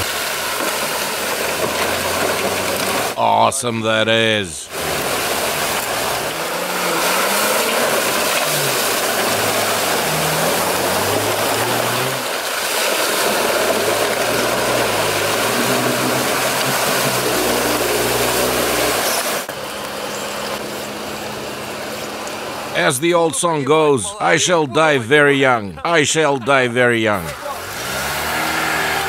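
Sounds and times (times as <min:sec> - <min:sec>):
engine revving: 0:00.0 - 0:03.2, 0:04.6 - 0:22.8, 0:27.2 - 0:29.0
water splashing and churning: 0:00.0 - 0:23.6, 0:26.5 - 0:29.0.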